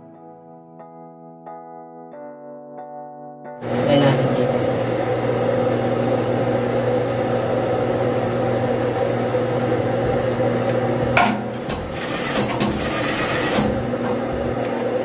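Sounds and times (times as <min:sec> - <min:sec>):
sewing machine motor hum: 0:04.6 - 0:15.0.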